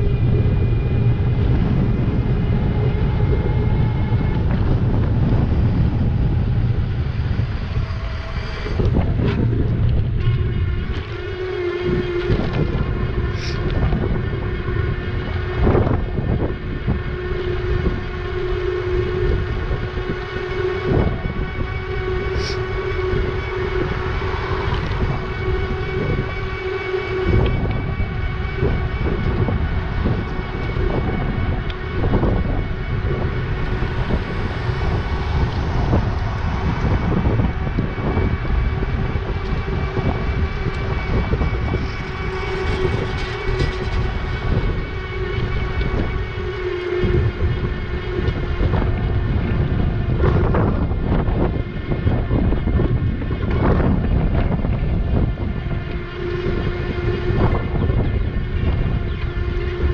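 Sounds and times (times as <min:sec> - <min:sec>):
electric bike motor whining: 0:00.0 - 0:59.9
wind rushing over microphone: 0:00.0 - 0:59.9.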